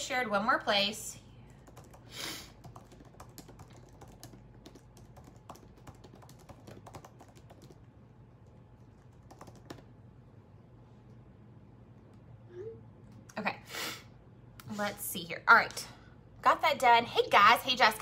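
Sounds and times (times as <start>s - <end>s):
keyboard typing taps: 1.6s - 2.0s, 2.6s - 7.9s, 9.0s - 9.9s.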